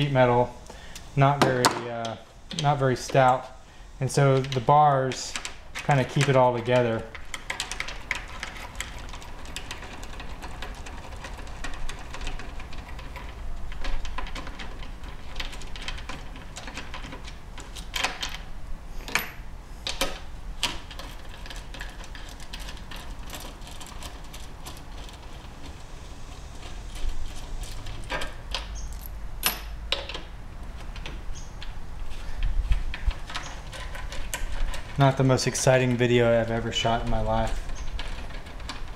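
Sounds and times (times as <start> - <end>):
metal tool and bolts clinking: 27.7 - 30.1.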